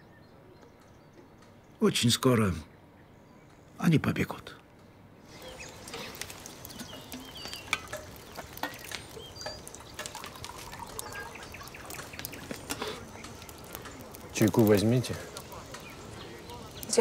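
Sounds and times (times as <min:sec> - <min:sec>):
campfire crackling: 0:05.2 - 0:17.0
bird chirps: 0:05.3 - 0:17.0
tea pouring into tin mug: 0:05.3 - 0:17.0.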